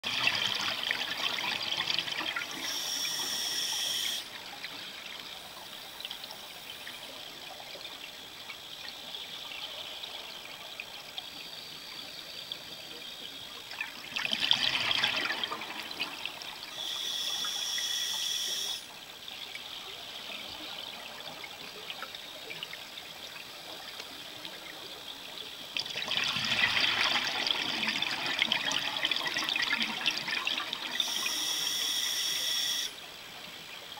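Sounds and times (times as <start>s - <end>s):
water hiss: 1.8s - 7.2s, 16.6s - 20.4s, 30.8s - 33.1s
hiss of inhaling through regulator: 2.6s - 4.3s, 16.7s - 18.9s, 31.0s - 33.0s.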